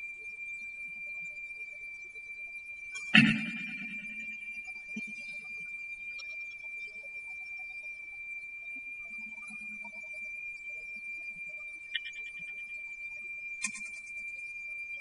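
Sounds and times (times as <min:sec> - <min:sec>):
steady high-pitched tone: 0:02.9 - 0:06.7, 0:11.8 - 0:12.8.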